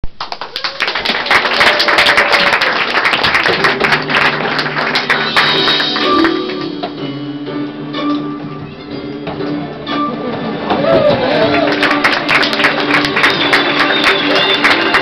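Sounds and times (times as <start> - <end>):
music: 2.8 - 15.0
plucked guitar notes: 5.2 - 11.4.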